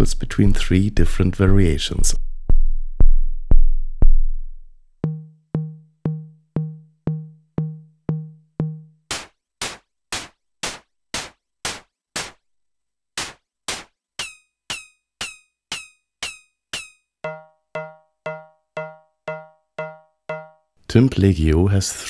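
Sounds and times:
electronic drum hits: 2.2s - 8.9s, 17.3s - 20.6s
noisy metallic ringing hits: 17.3s - 20.7s.

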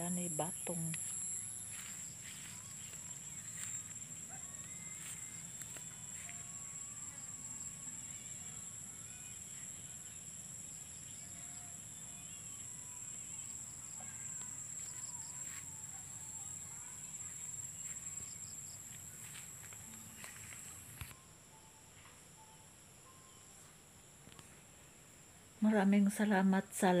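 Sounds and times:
high-pitched insect drone: 0.0s - 23.6s
faint chirps: 0.1s - 25.6s.

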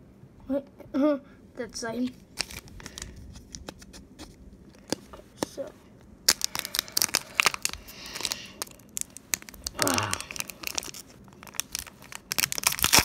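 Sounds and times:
wrapper crinkling and tearing: 2.2s - 5.0s, 6.2s - 13.0s
short vocal sound: 9.8s - 10.4s.

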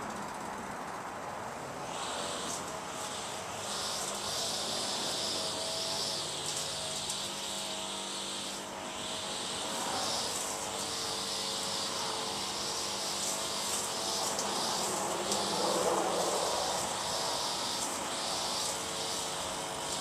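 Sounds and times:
insect-like hiss: 9.3s - 20.0s.

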